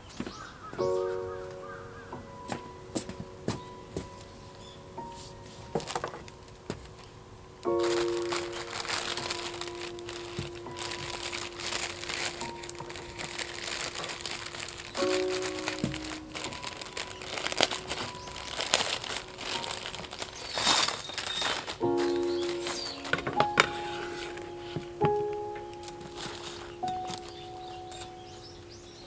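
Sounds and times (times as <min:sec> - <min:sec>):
background music with held notes: 0:00.7 - 0:29.0
plastic sheet crinkling: 0:05.0 - 0:28.2.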